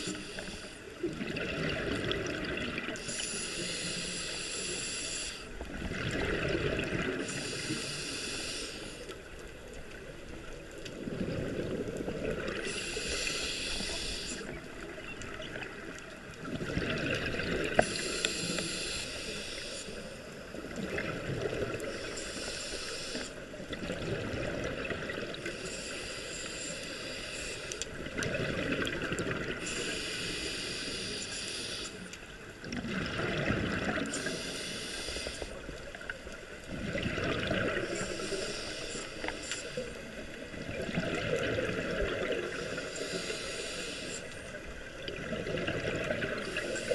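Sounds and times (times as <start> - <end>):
regulator inhale rushing: 0.0 - 1.0, 3.0 - 5.6, 7.2 - 9.2, 12.5 - 14.6, 17.8 - 20.4, 21.8 - 23.5, 25.4 - 27.9, 29.6 - 32.2, 34.0 - 35.8, 37.7 - 40.4, 42.4 - 44.6, 46.4 - 46.9
exhaled bubbles: 1.0 - 3.1, 5.7 - 7.3, 11.0 - 13.2, 14.4 - 18.1, 20.6 - 21.9, 23.7 - 25.5, 28.0 - 29.7, 32.6 - 34.4, 36.7 - 38.0, 40.5 - 42.8, 44.9 - 46.9.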